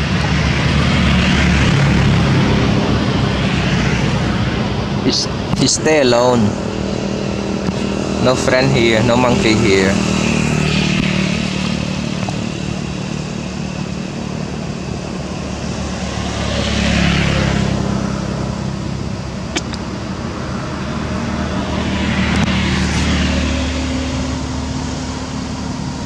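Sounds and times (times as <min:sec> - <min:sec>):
engine hum: 0:00.0 - 0:26.0
vehicles passing: 0:00.0 - 0:26.0
sharp click: 0:19.5 - 0:19.9.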